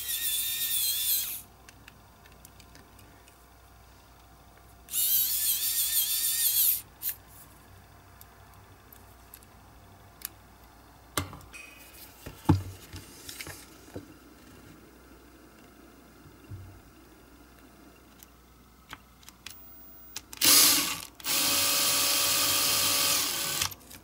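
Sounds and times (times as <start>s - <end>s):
electric screwdriver whirring: 20.4s - 23.7s.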